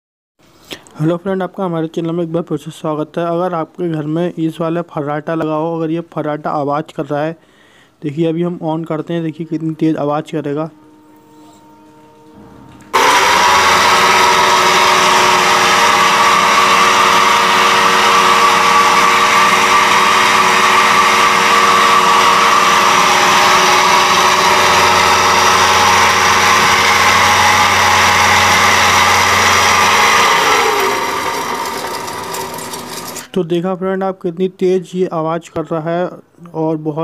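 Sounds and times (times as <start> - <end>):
fan motor whirring whine: 10.4 - 33.3.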